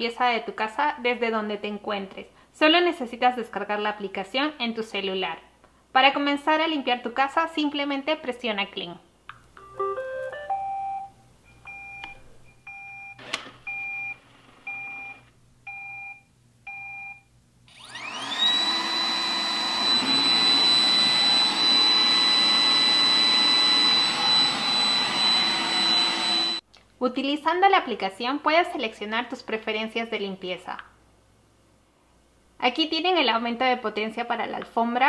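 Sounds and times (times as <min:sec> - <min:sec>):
two-note beeps: 0:09.6 - 0:11.1
robot vacuum motor whine: 0:17.7 - 0:26.6.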